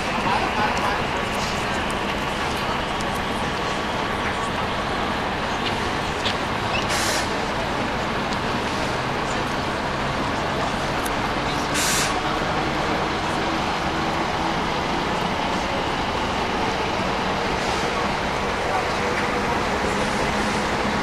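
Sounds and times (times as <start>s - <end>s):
motor vehicle engines idling: 0.0s - 21.0s
short sharp hiss: 6.9s - 7.3s, 11.8s - 12.2s.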